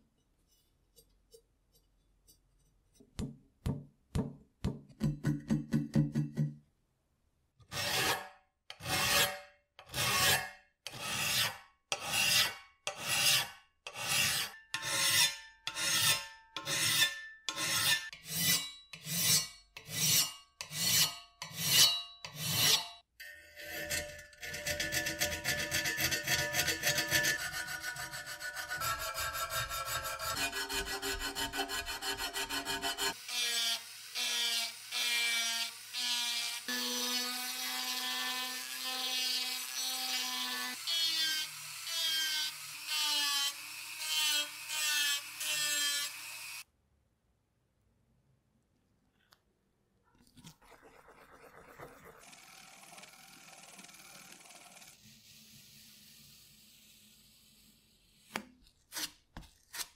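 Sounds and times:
file rasping on metal: 7.7s - 23.0s, 23.6s - 46.3s
rotary tool grinding metal: 7.8s - 46.6s, 52.2s - 57.4s.

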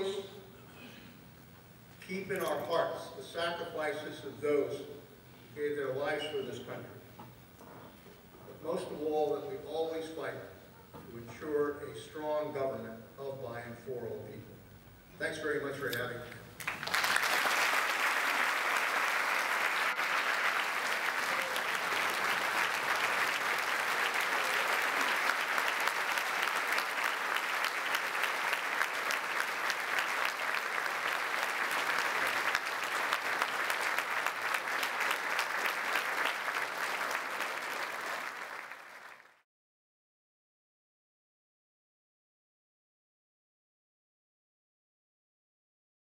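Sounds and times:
large audience applauding: 16.6s - 39.4s.

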